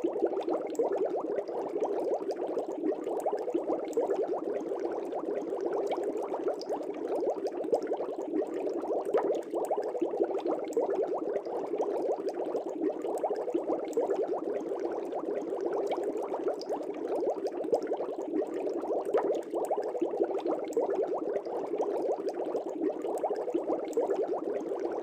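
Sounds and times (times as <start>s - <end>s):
aquarium bubbling: 0.0s - 25.0s.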